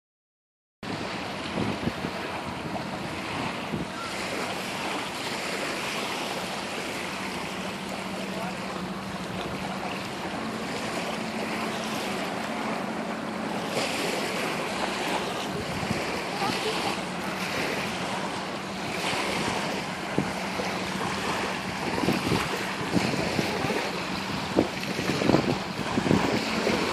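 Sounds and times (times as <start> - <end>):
wind noise on microphone: 0.8 - 6.0, 15.0 - 26.9
small waves lapping shore: 0.8 - 26.9.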